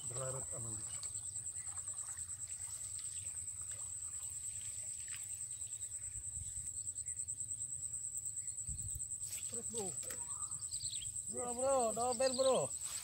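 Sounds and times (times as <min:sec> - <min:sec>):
insect chirring trill: 0:00.0 - 0:13.0.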